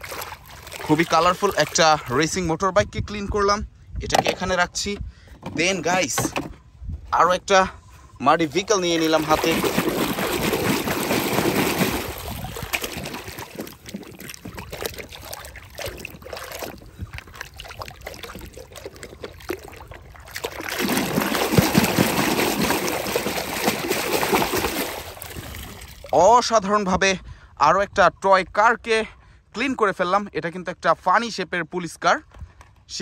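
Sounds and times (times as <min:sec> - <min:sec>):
water splashing and sloshing: 0:00.0 - 0:02.9, 0:07.9 - 0:26.8
water dripping: 0:08.7 - 0:26.2.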